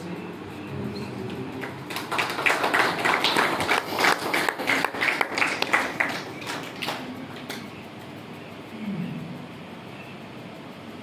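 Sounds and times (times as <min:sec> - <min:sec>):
crowd applauding: 0:01.6 - 0:07.6.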